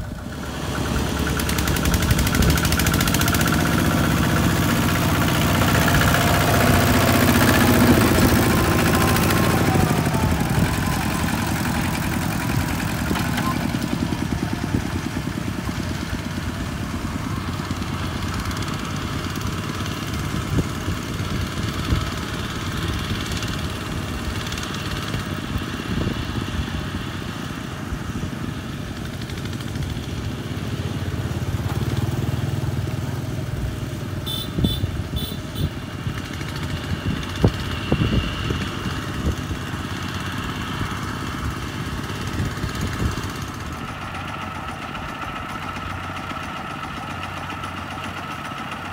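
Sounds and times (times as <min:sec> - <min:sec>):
diesel tractor engine chugging: 0:00.0 - 0:48.9
other tractor engines: 0:00.0 - 0:48.9.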